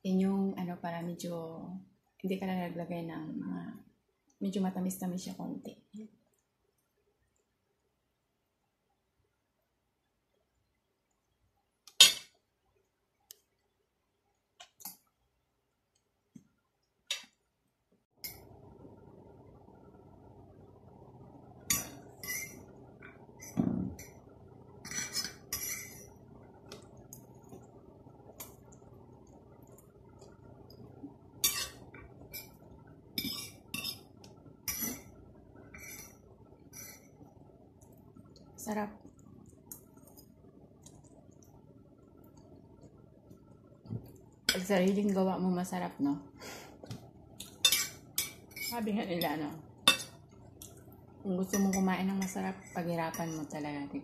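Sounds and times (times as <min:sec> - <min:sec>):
fork clinking on ceramic plate: 0:49.9 - 0:50.2.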